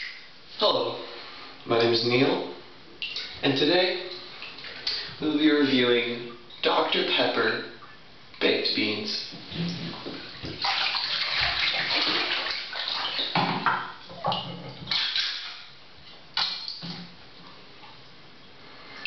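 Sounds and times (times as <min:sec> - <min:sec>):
water sloshing in bathtub: 0:03.0 - 0:07.0, 0:09.3 - 0:18.2.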